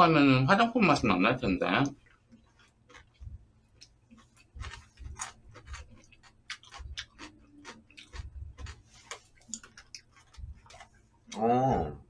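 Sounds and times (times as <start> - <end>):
soft low thumps: 10.3 - 10.7.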